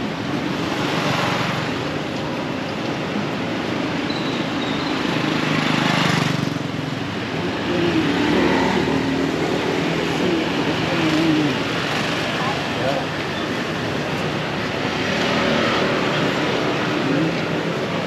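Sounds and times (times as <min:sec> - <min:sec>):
motorbike engines running: 0:00.0 - 0:18.0
traffic hum: 0:00.0 - 0:18.0
scooter passing: 0:04.5 - 0:18.0.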